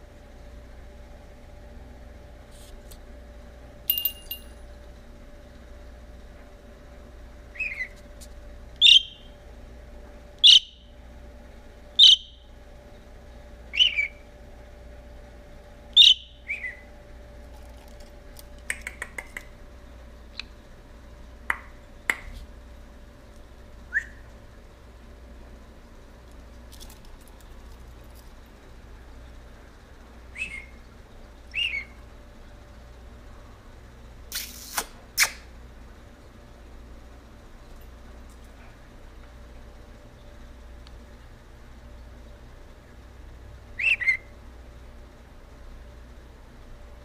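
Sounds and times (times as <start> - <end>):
brief ringing: 3.9 - 4.6
budgerigar chirping calls: 7.6 - 7.9, 8.8 - 9.3, 10.4 - 10.8, 12.0 - 12.4, 13.7 - 14.2, 16.0 - 16.8, 31.6 - 32.0, 43.8 - 44.3.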